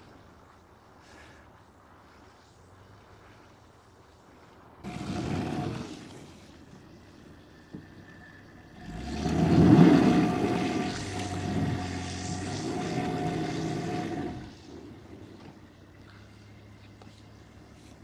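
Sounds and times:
wheels spinning in mud: 0.0 - 18.0
car engine revving: 4.8 - 18.0.

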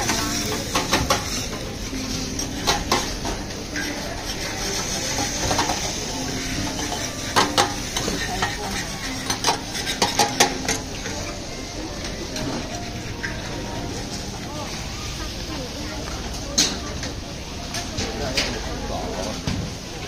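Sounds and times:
metal spatulas scraping griddle: 0.0 - 11.1
food sizzling: 0.0 - 17.8.

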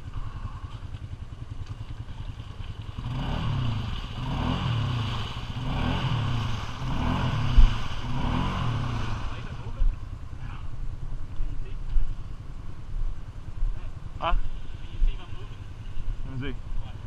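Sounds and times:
atv engine revving: 0.0 - 11.1.

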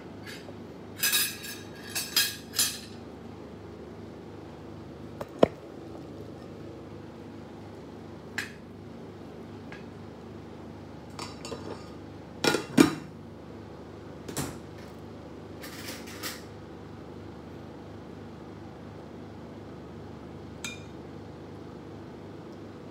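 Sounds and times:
faint steady hum: 0.0 - 22.9
dishes and cutlery clinking: 0.2 - 3.0.

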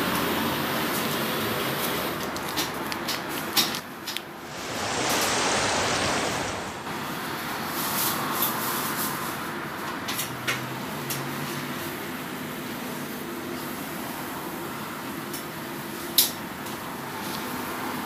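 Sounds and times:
hissing noise: 4.3 - 7.2
kitchen hum with fan hiss: 7.8 - 18.0.

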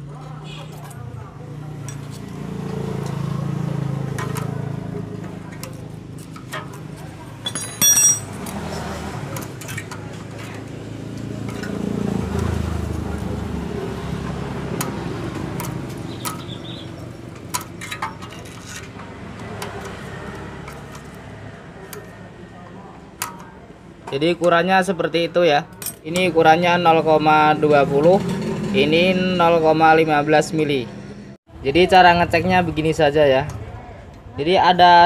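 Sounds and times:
metal tools clicking on engine: 4.1 - 12.5, 14.6 - 22.2, 23.2 - 23.6, 25.7 - 26.3.

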